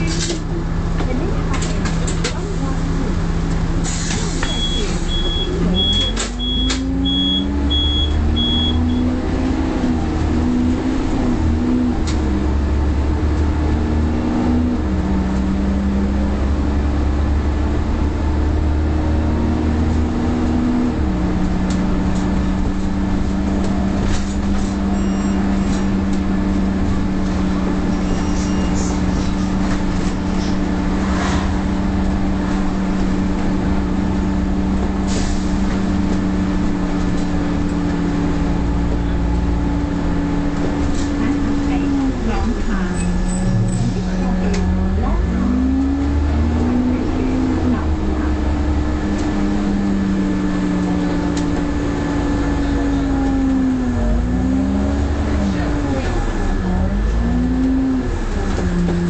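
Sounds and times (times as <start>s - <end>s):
bus engine and transmission: 0.0s - 59.0s
high beep: 4.5s - 9.1s.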